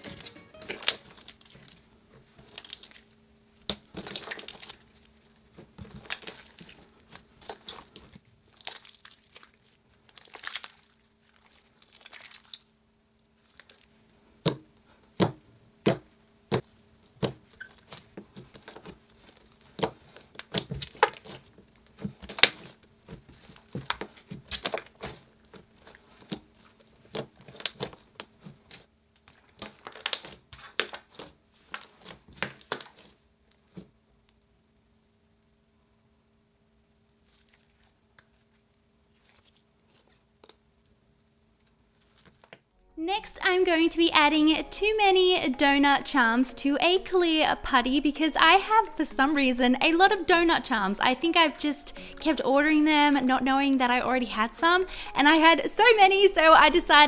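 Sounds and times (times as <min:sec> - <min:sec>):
slime squishing and tearing: 0:02.4 - 0:12.7, 0:16.6 - 0:34.0, 0:37.2 - 0:40.7.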